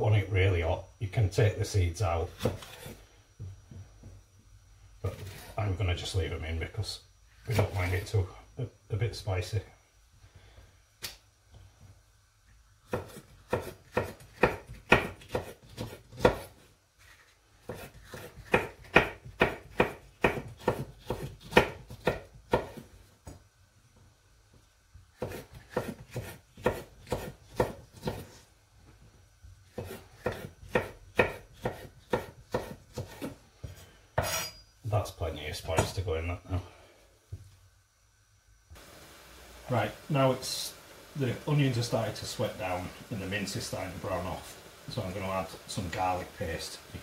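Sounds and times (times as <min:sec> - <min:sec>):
knife chopping on cutting board: 0:12.9 - 0:16.6, 0:17.6 - 0:22.8, 0:25.2 - 0:28.3, 0:29.7 - 0:33.4.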